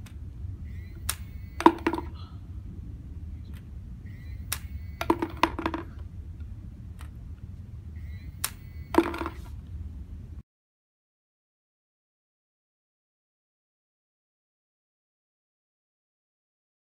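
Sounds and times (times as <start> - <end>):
low steady hum: 0.0 - 10.4
ball launcher high whine: 0.6 - 2.3, 4.0 - 6.0
mechanical clicks and snaps: 4.5 - 4.7, 8.4 - 8.6.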